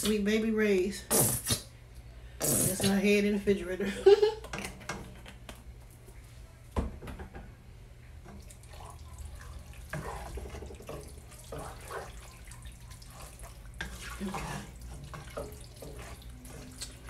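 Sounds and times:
low steady hum: 0.0 - 17.0
spatula stirring wet food in pot: 8.2 - 17.0.

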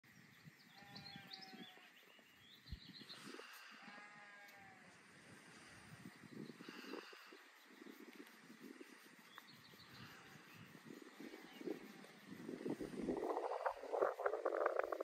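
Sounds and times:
lamb bleating: 3.7 - 4.8.

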